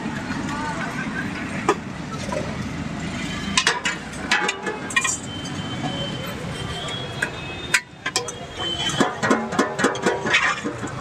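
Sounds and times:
street traffic: 0.0 - 11.0
steel plates and utensils clinking: 3.4 - 5.7, 6.5 - 11.0.

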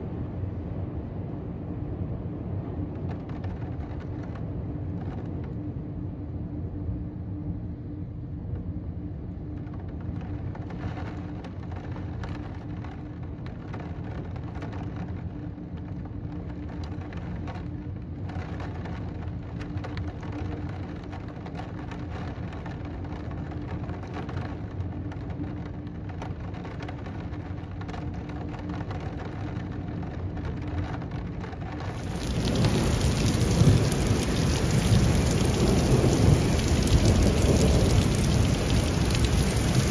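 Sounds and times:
faint steady hum: 0.0 - 22.4
heavy rain: 31.7 - 39.9
low thunder rumbling: 31.8 - 39.9.

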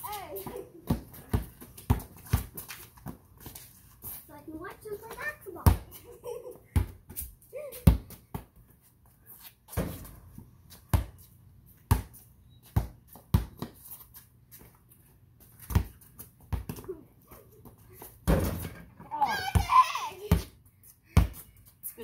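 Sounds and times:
basketball bouncing on concrete: 0.0 - 3.6, 4.5 - 8.7, 9.7 - 13.8, 15.6 - 17.0, 17.6 - 20.6, 21.2 - 21.6.

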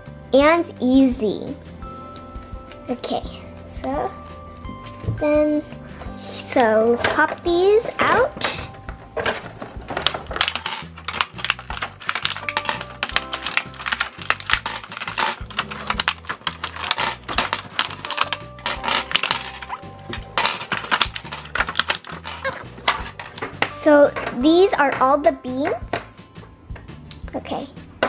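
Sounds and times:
background music: 0.0 - 28.0
plastic packaging crackling: 8.4 - 23.6.

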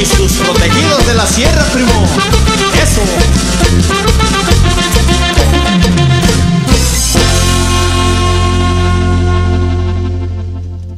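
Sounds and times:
band playing rhythmically: 0.0 - 10.9.

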